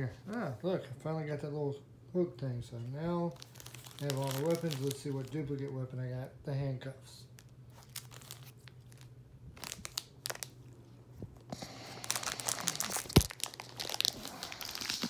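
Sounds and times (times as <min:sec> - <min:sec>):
toy packaging crinkling: 0:03.3 - 0:05.8, 0:07.4 - 0:10.8, 0:11.6 - 0:15.0.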